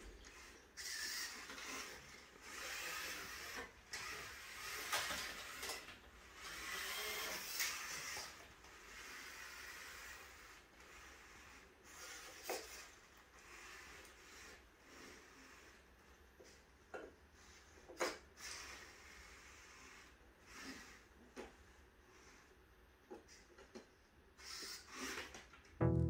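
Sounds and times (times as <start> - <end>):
robot motors whirring: 0.0 - 15.8.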